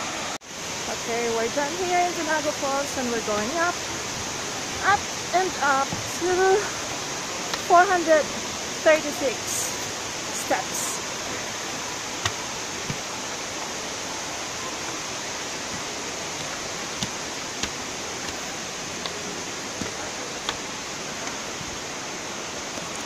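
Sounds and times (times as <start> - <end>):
waterfall rushing: 0.0 - 23.0
footsteps on stone steps: 4.1 - 6.8, 7.4 - 7.9, 11.7 - 13.8, 14.9 - 21.9.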